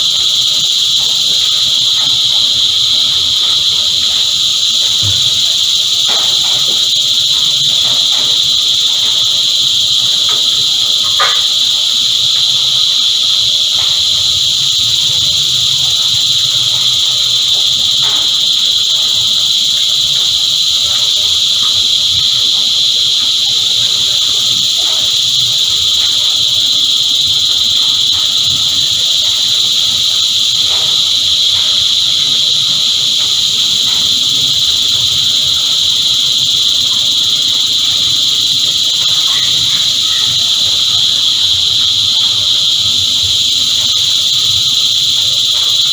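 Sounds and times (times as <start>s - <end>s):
cicada chorus: 0.0s - 45.9s.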